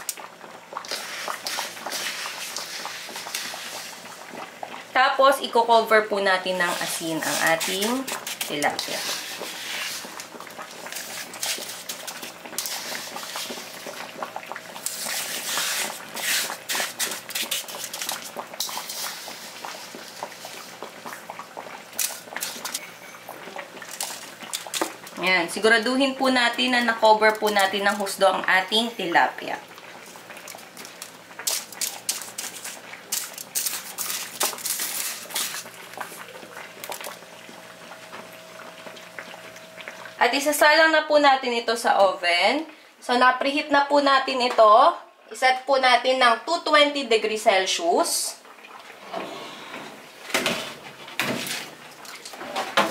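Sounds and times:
rock salt crunching: 30.4s - 37.2s.

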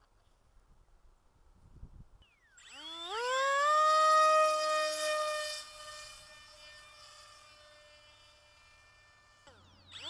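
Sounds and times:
electric motor and propeller whining: 2.3s - 10.0s.

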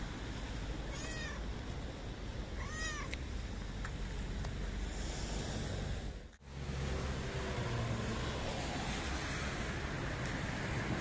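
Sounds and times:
cat meowing: 0.8s - 1.4s, 2.6s - 3.1s.

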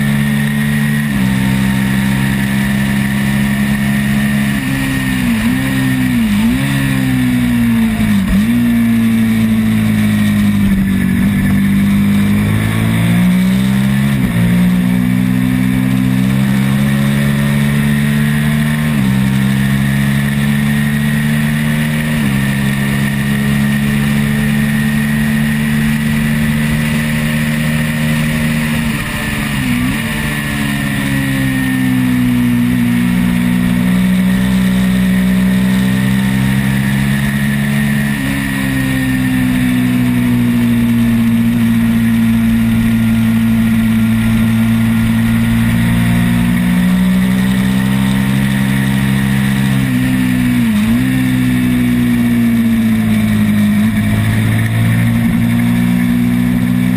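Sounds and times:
motorcycle engine at high revs: 0.0s - 56.9s.

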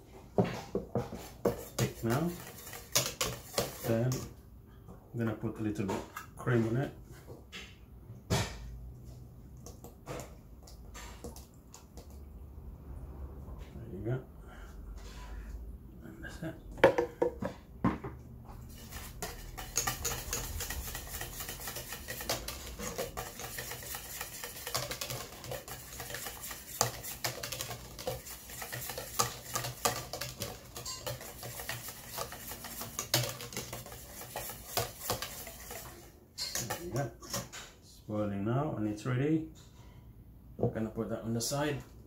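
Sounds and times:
whisk scraping in a metal pot: 1.0s - 4.4s, 18.6s - 37.6s.

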